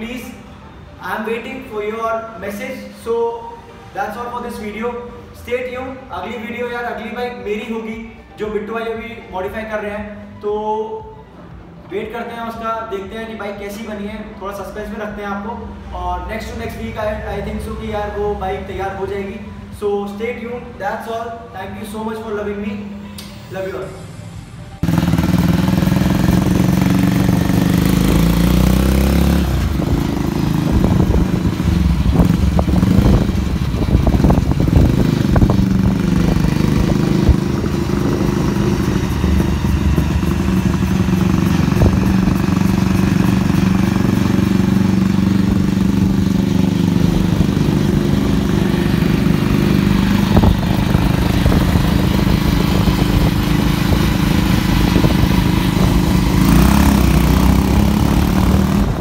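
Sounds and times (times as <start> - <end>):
motorcycle engine cruising: 24.7 - 59.0.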